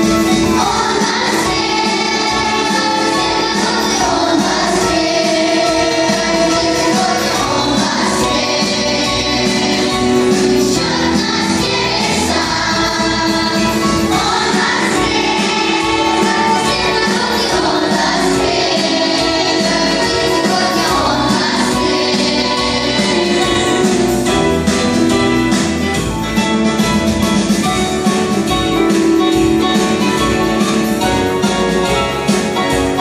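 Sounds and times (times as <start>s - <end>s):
children's choir singing: 0.0s - 25.9s
keyboard accompaniment: 0.0s - 33.0s.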